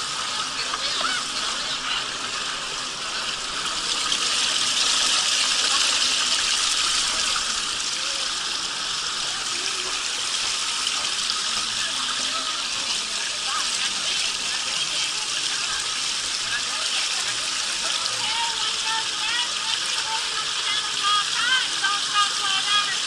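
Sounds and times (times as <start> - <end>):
water rushing down a water slide: 0.0 - 23.0.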